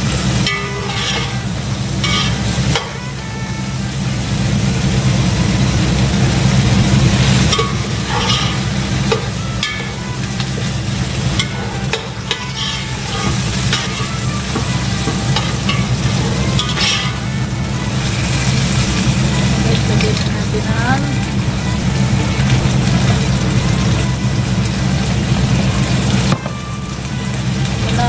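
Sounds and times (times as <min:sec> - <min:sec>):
metal ladle scraping pot: 0:00.0 - 0:03.6, 0:07.0 - 0:20.3
frying sizzle: 0:00.0 - 0:28.0
low hum: 0:00.0 - 0:28.0.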